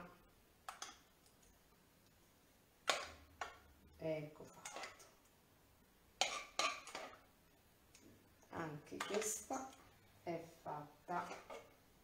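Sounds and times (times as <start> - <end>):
utensil scraping saucepan: 4.4 - 5.2, 6.2 - 7.2, 8.9 - 9.9, 11.1 - 11.7.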